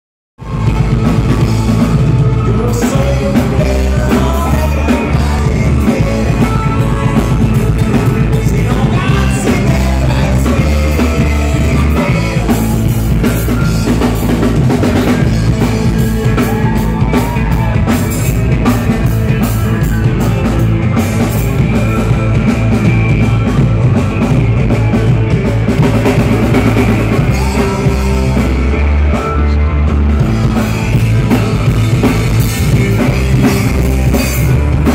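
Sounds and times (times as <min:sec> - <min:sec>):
live rock band: 0:00.4 - 0:34.9
male vocals: 0:02.4 - 0:14.2.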